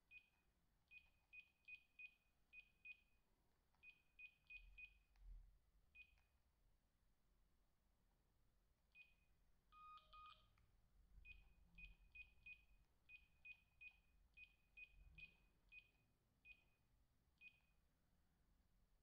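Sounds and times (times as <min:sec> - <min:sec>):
two-tone beep: 0:09.8 - 0:10.5.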